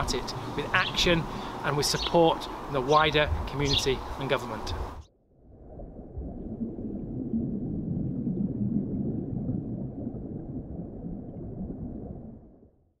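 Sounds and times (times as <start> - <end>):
muffled underwater rumble: 5.3 - 13.0.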